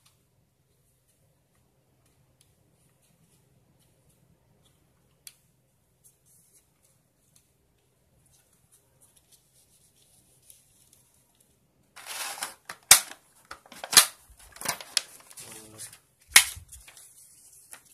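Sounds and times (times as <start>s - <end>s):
plastic mouse handling noise: 8.3s - 17.9s.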